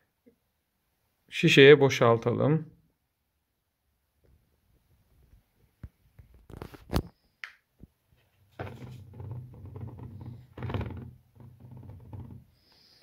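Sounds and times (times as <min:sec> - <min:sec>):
plastic bottle knocks: 0:08.6 - 0:12.5.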